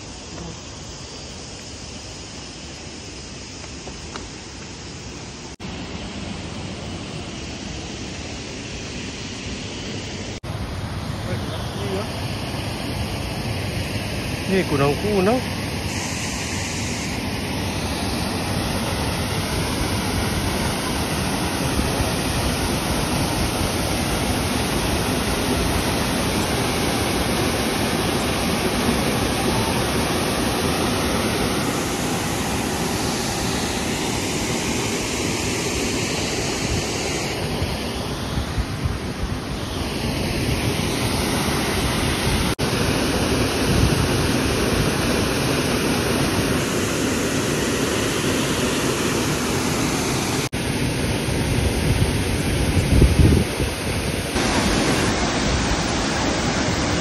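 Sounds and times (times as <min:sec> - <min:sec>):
waterfall and stream rushing: 0:00.0 - 0:57.0.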